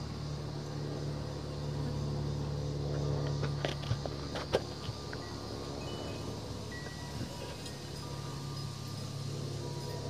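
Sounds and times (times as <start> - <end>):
steady low hum: 0.0 - 10.0
wind chimes ringing: 5.2 - 10.0.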